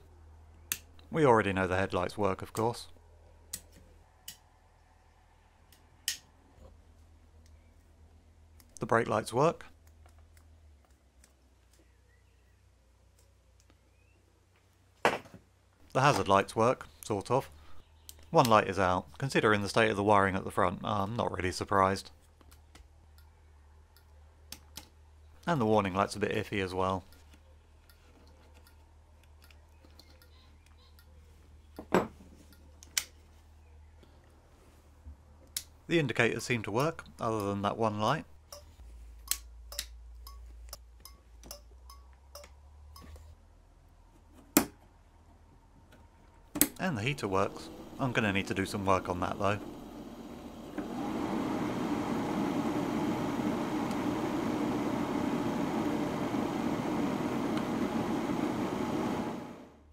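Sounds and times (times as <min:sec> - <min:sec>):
low steady hum: 0:31.6 - 0:59.9
heater blower fan whirring: 0:46.7 - 0:59.9.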